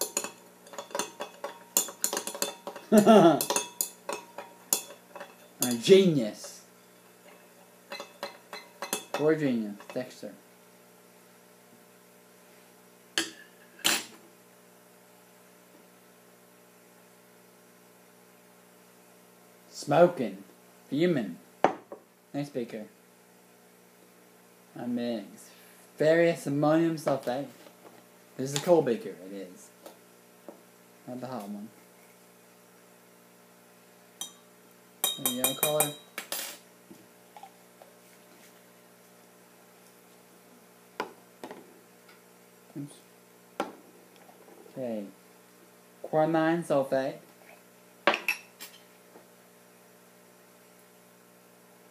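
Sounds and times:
glassware knocking and clattering: 0:00.0 - 0:05.9, 0:35.0 - 0:36.1, 0:48.1 - 0:48.5
electrical hum: 0:00.0 - 0:51.9.

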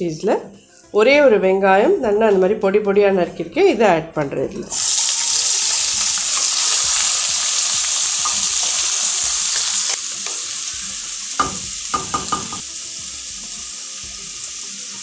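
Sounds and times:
onion sizzling in hot oil: 0:04.7 - 0:15.0.

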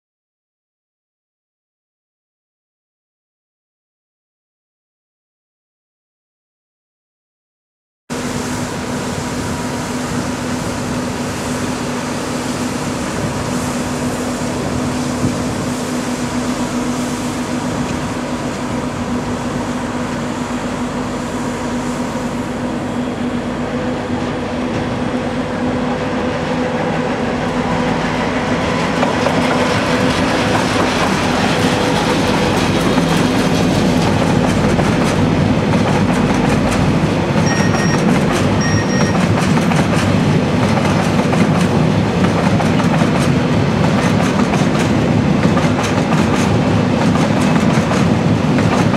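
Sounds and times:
diesel locomotive engine hum: 0:08.1 - 0:48.9
wagon wheels clacking on rails: 0:28.8 - 0:48.9.

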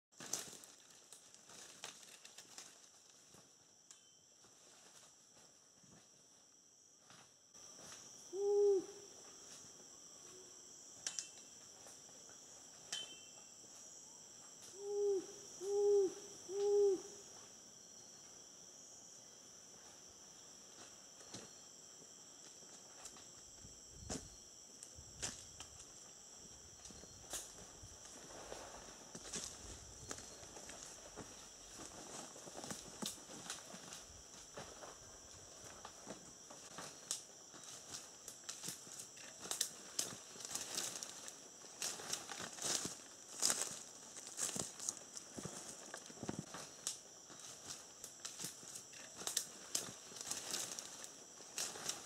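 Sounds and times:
insects droning: 0:00.2 - 0:52.0
animal hooting call: 0:14.7 - 0:17.2.

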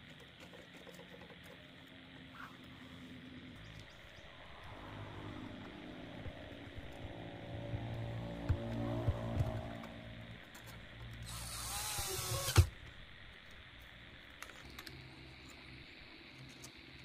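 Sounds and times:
steady hum: 0:00.0 - 0:17.0
small electric motor whirring: 0:04.2 - 0:17.0.

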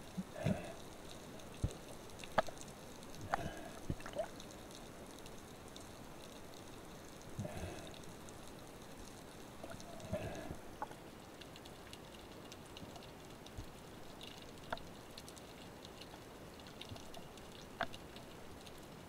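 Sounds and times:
crackling clicks: 0:00.1 - 0:19.0
underwater hiss: 0:07.4 - 0:08.2, 0:09.8 - 0:10.9.

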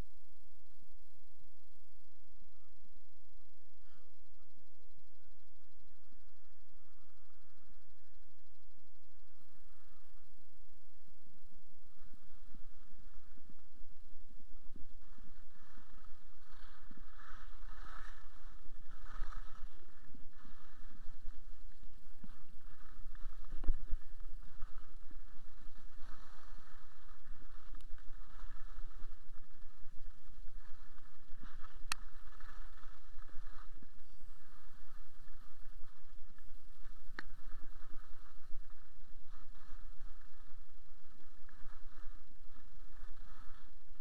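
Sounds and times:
wind noise: 0:00.0 - 0:44.0
skis scraping over snow: 0:14.6 - 0:43.9.

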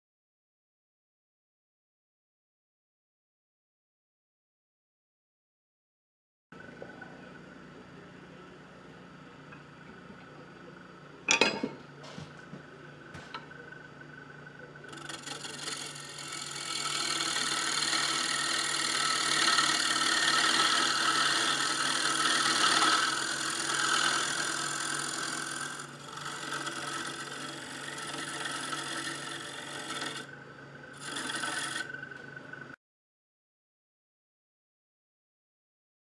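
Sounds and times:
lathe motor hum: 0:13.0 - 0:32.8
gouge scraping wood on lathe: 0:14.8 - 0:32.2.

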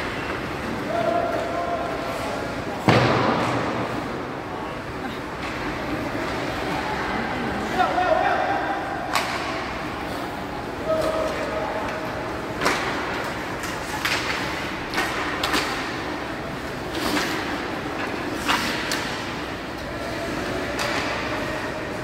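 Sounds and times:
hockey sticks striking puck: 0:00.0 - 0:04.1, 0:09.0 - 0:09.8, 0:10.9 - 0:21.8
hubbub of skates: 0:00.0 - 0:22.0
puck hitting boards: 0:02.8 - 0:03.8, 0:09.1 - 0:09.6, 0:12.6 - 0:16.2, 0:20.7 - 0:21.4.

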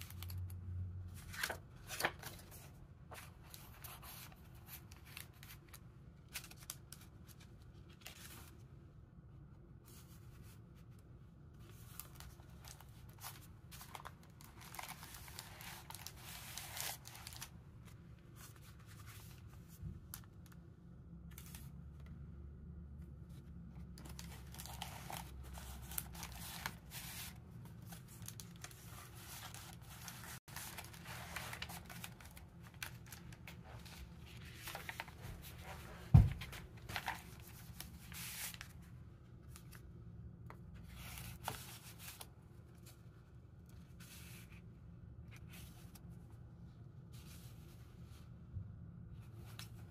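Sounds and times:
paper pages rustling: 0:00.0 - 0:08.6, 0:11.6 - 0:20.6, 0:21.3 - 0:22.0, 0:23.2 - 0:38.8, 0:40.7 - 0:44.6.

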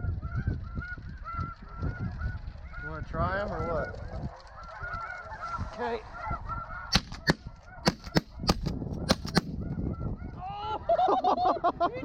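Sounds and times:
geese honking: 0:00.0 - 0:11.1
shotgun shots: 0:06.9 - 0:09.6.

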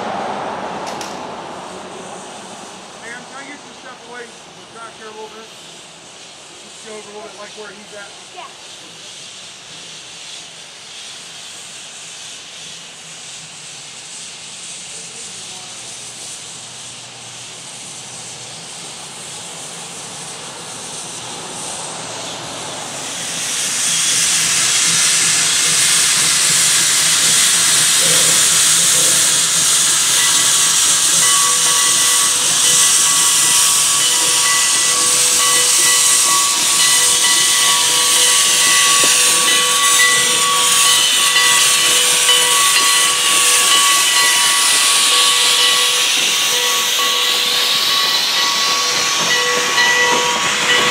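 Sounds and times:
steam locomotive hissing steam: 0:00.0 - 0:50.9.

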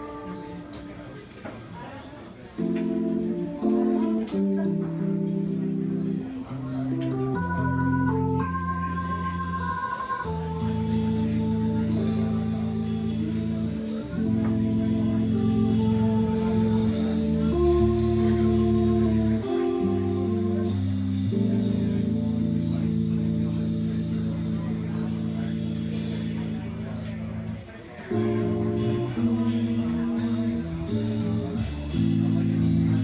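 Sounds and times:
keyboard playing organ-like chords: 0:00.0 - 0:01.2, 0:02.5 - 0:33.0
drum kit cymbals: 0:08.6 - 0:27.0, 0:27.6 - 0:33.0.

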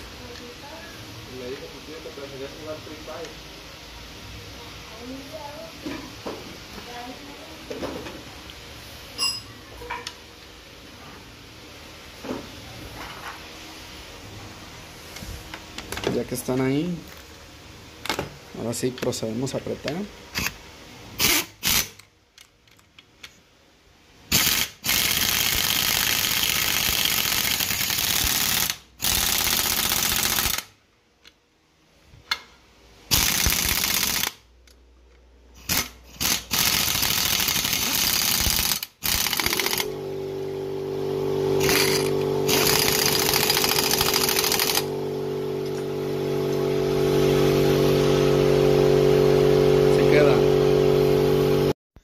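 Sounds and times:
impact wrench hammering: 0:35.7 - 0:39.9, 0:41.6 - 0:44.9
steady motor hum: 0:35.8 - 0:51.8.

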